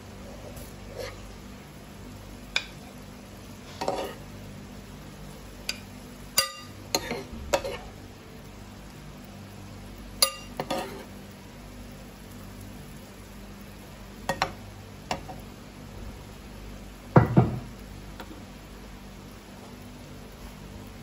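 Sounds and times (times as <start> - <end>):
low steady hum: 0.0 - 21.0
metal spoon clinking on pan: 5.7 - 7.8, 10.2 - 11.0.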